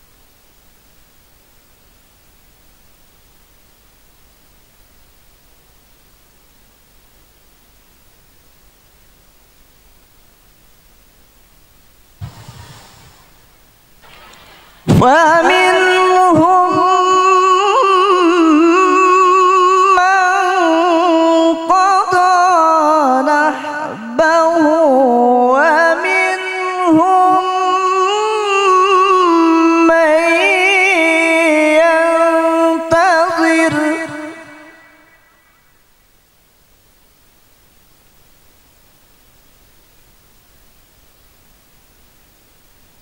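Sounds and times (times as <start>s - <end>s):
man chanting into microphone: 14.9s - 35.1s.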